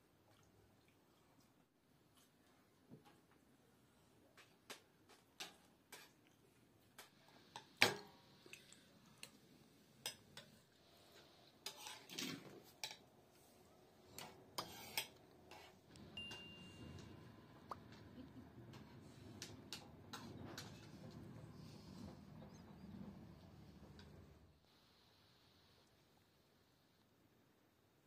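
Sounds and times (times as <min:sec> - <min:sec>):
spoons clinking against bowls: 0:14.2 - 0:17.2.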